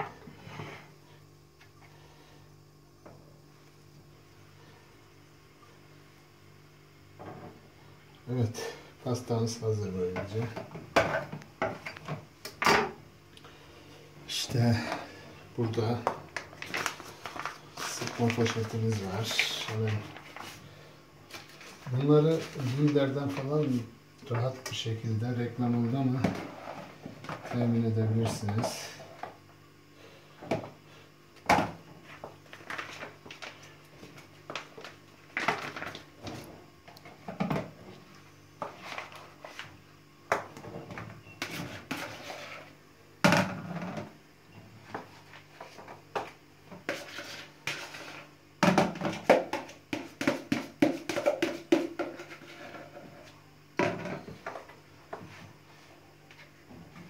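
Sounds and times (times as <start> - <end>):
spatula knocking and scraping: 40.3 - 42.7, 44.9 - 55.4.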